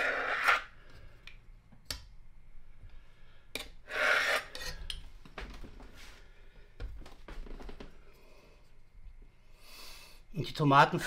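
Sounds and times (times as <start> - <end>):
metal blade scraping dough on wood: 3.9 - 4.8.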